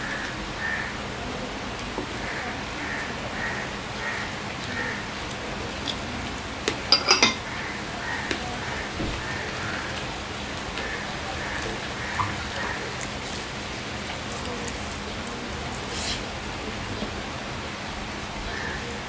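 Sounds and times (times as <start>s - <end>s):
rain hissing: 0.0s - 19.0s
bowl clinking against crockery: 6.8s - 7.5s.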